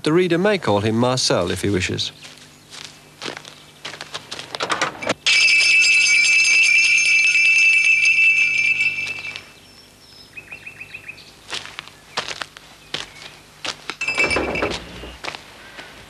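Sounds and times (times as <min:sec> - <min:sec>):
bell on gate jangling: 0:05.2 - 0:09.6, 0:14.0 - 0:15.3.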